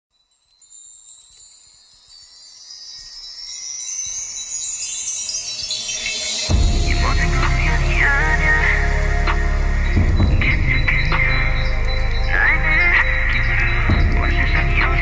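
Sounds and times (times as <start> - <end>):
bell-like ringing tones: 0.1 - 15.0
deep bass beat: 6.5 - 15.0.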